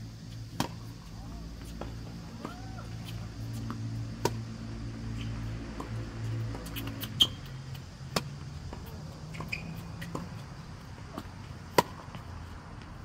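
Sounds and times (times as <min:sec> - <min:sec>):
tennis ball struck and bouncing: 0:00.5 - 0:00.9, 0:01.7 - 0:04.6, 0:08.1 - 0:10.3, 0:11.1 - 0:12.2.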